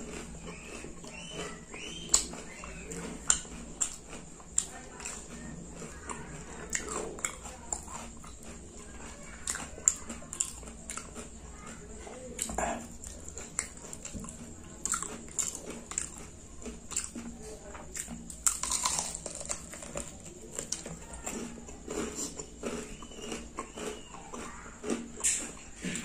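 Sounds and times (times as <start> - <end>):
mouth clicks and smacks: 0.0 - 8.6, 17.9 - 26.0
biting and chewing chicken: 0.0 - 26.0.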